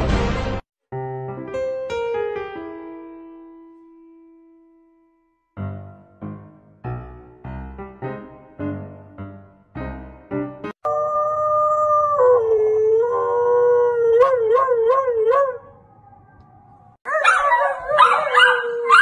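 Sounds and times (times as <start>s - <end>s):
piano notes: 0.0s - 10.8s
husky howling: 10.8s - 19.0s
small dog howling: 10.9s - 19.0s.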